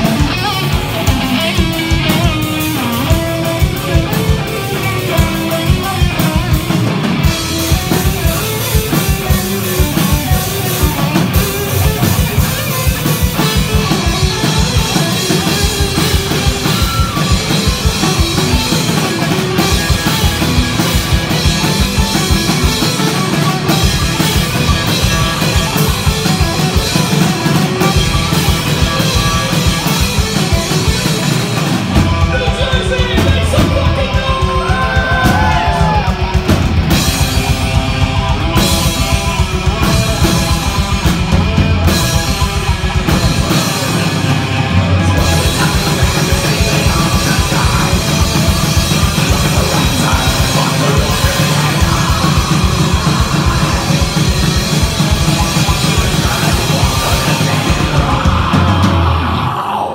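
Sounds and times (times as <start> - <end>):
rapid drumming on drum kit: 0.0 - 59.5
electric guitars: 0.0 - 59.9
vocalist singing into microphone: 44.9 - 59.9.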